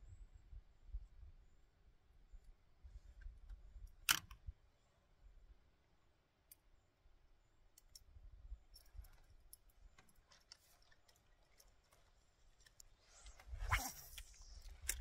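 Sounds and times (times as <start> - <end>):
fishing tackle clicks: 8.7 - 15.0.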